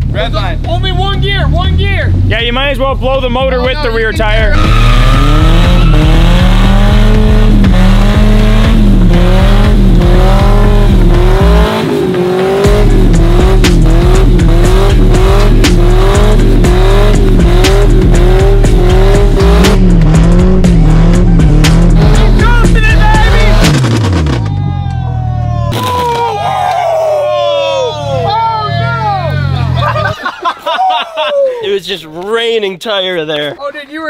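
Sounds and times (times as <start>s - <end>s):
engine revving near redline: 0.0s - 24.5s
tire squealing on concrete: 0.1s - 32.1s.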